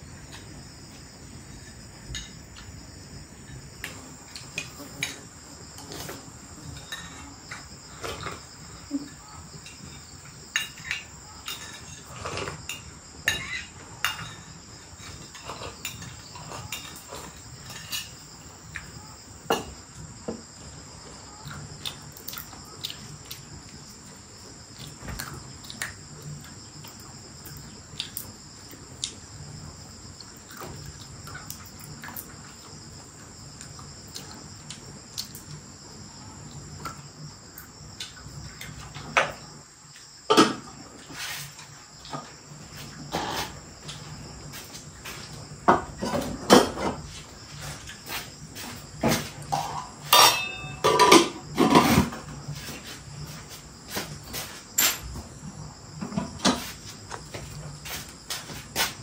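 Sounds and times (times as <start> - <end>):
crickets chirping: 0.0 - 59.0
dishes and utensils clinking: 3.8 - 18.2, 40.3 - 40.7, 49.1 - 52.2.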